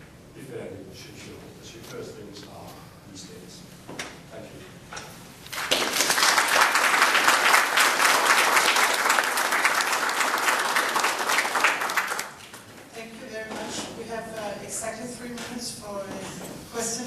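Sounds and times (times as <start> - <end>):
audience applauding: 5.5 - 12.7.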